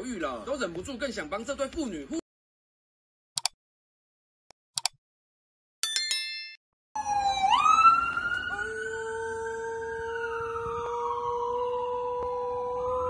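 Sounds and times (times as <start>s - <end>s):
mouse clicks: 3.4s - 3.6s, 4.8s - 5.0s
notification chime: 5.8s - 6.6s
ambulance siren wailing: 7.0s - 13.0s.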